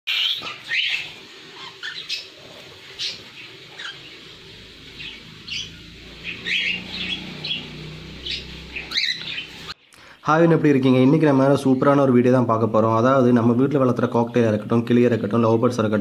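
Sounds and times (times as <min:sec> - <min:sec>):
cockatiels chirping: 0:00.1 - 0:09.8.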